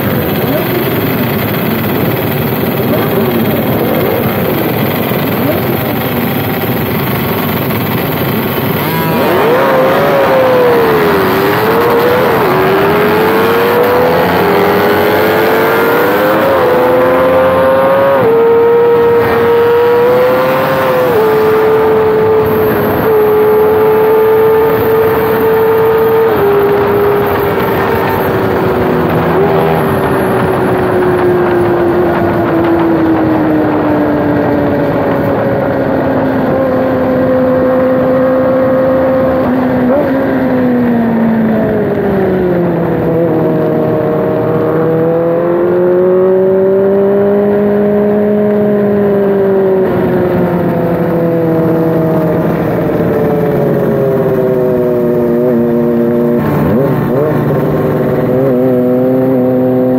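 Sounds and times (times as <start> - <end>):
motorcycle engine revving hard: 0.0 - 59.9.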